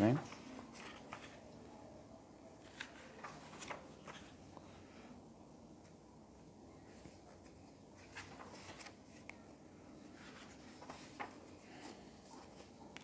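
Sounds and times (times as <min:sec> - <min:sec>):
book pages rustling: 0:00.1 - 0:01.5, 0:02.6 - 0:04.8, 0:06.9 - 0:09.4, 0:10.1 - 0:13.0.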